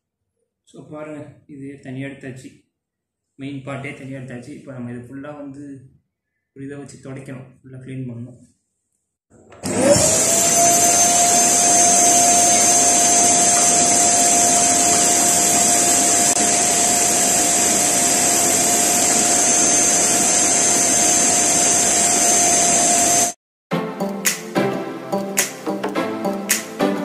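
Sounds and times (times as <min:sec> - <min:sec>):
vacuum cleaner whining: 0:09.3 - 0:23.4.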